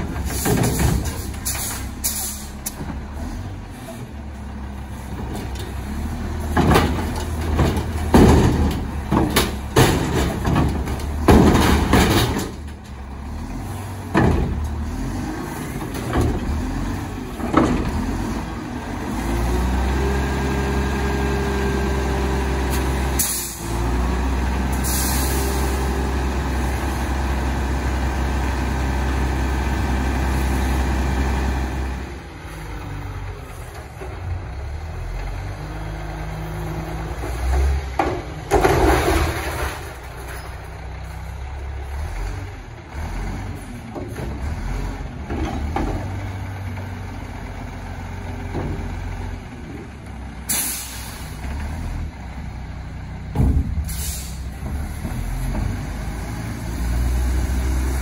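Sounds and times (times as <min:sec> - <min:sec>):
diesel engine revving: 0:00.0 - 0:58.0
short air hisses: 0:24.8 - 0:25.5, 0:50.5 - 0:51.3, 0:53.9 - 0:54.5.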